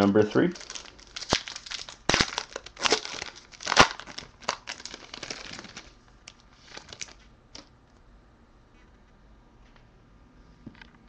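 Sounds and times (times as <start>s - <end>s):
wrapper tearing and crinkling: 0.4s - 7.7s.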